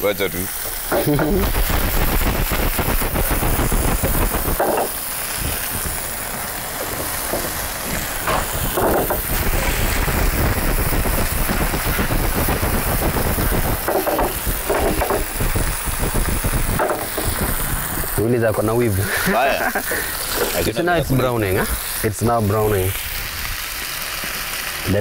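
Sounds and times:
food frying in oil: 0.0 - 25.0.

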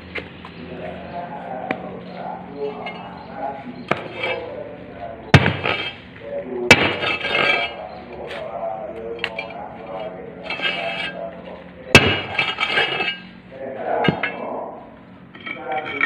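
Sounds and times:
metal clanks from mould: 2.6 - 3.2, 3.8 - 4.5, 5.3 - 6.0, 6.7 - 7.8, 9.2 - 11.2, 12.0 - 13.3, 14.0 - 14.5, 15.3 - 16.0
sharp ringing metal strikes: 5.3 - 6.0, 12.0 - 13.3.

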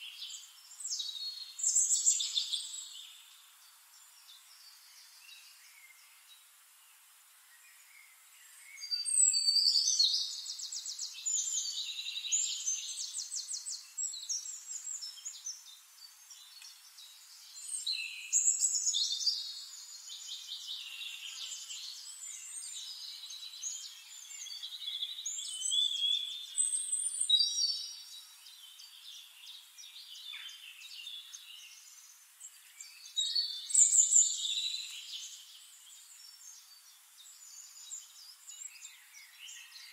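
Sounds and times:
songbirds trilling and chirping: 0.0 - 39.9.

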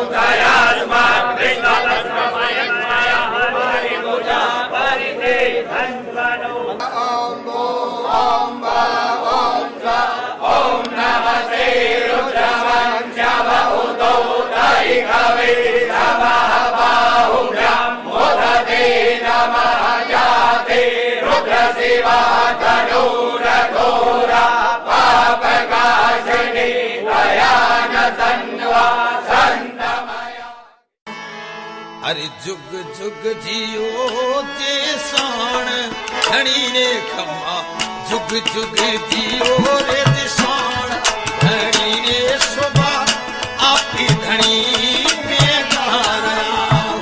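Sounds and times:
men chanting together: 0.0 - 30.7
song: 31.1 - 47.0
sharp clicks: 35.0 - 36.5, 37.7 - 47.0.

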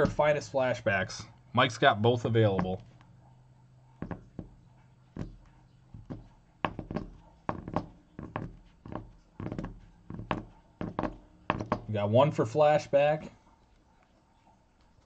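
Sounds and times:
plastic card holders tapping: 4.0 - 4.6, 5.2 - 11.9.

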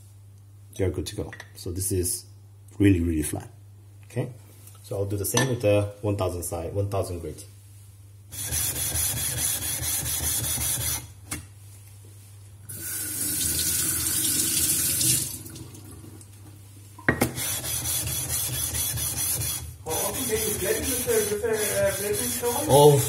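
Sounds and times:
tap water running into sink: 12.7 - 16.3.

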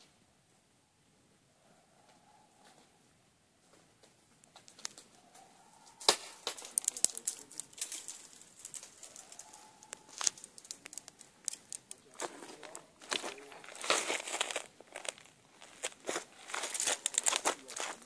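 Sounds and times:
sharp crack: 6.0 - 18.0
footsteps on loose gravel: 6.2 - 18.0.

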